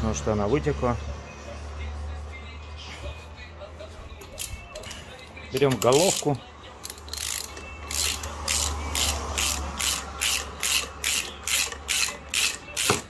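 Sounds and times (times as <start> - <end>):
ratchet wrench clicking: 5.6 - 13.0.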